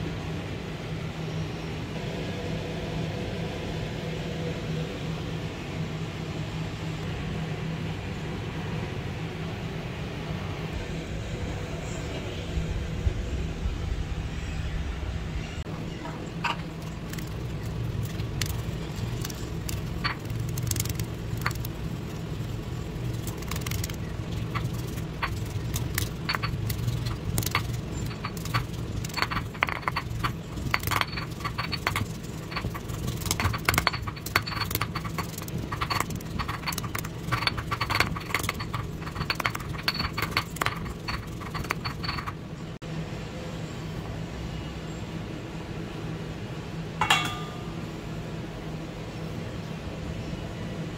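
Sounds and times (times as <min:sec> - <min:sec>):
low hum: 0:00.0 - 0:44.2
stone pestle pounding in mortar: 0:23.1 - 0:42.3.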